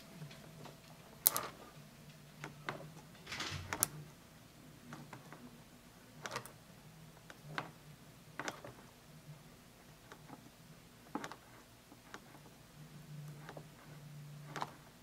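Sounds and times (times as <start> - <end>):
clicks and rustles of wires: 0.0 - 4.1, 13.2 - 15.0
faint low hum: 0.0 - 15.0.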